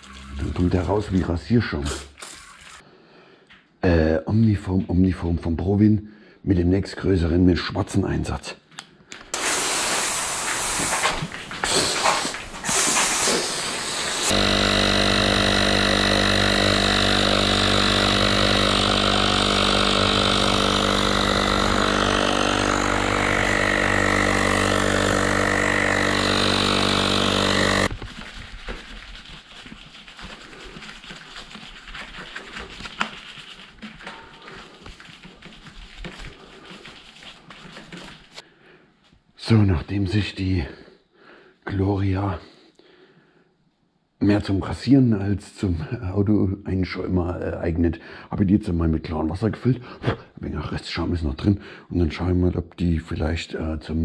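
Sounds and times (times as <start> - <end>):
air compressor humming: 9.3 - 27.9
foam sprayer hissing: 9.3 - 28.2
rustling and handling noises: 27.9 - 38.4.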